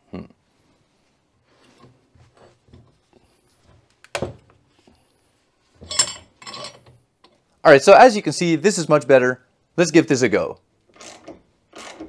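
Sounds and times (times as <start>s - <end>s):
metal clatter: 5.8s - 7.0s
metal tools clinking and scraping: 5.8s - 7.0s.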